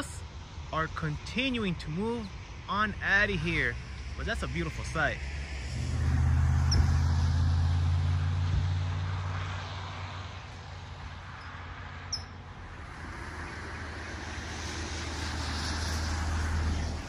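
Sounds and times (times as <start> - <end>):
faint road traffic: 0.0 - 17.0
vehicle approaching: 0.8 - 17.0
vehicle passing close by: 3.5 - 17.0.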